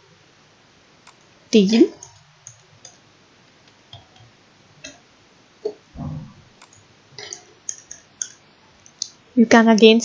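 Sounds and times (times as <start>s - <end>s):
low thump: 6.0s - 6.5s.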